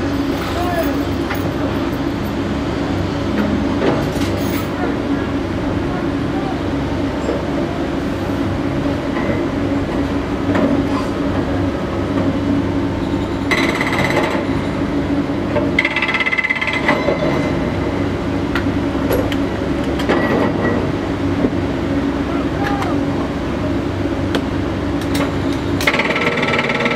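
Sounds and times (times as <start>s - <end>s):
excavator diesel engines running: 0.0s - 26.9s
hydraulic breaker hammering: 13.5s - 14.6s, 15.5s - 17.6s, 25.1s - 26.9s.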